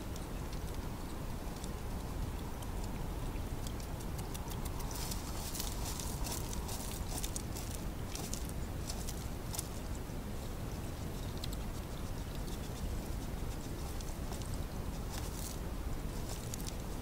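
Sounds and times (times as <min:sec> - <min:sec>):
hedgehog crunching dry food: 0:00.4 - 0:10.0, 0:11.0 - 0:17.0
hedgehog scratching its spines: 0:03.9 - 0:09.8, 0:11.0 - 0:17.0.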